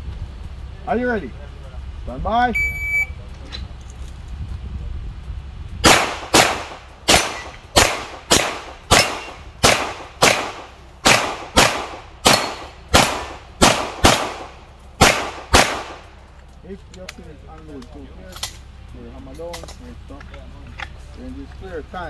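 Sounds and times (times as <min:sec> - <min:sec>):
pistol shots: 0:05.8 - 0:16.1.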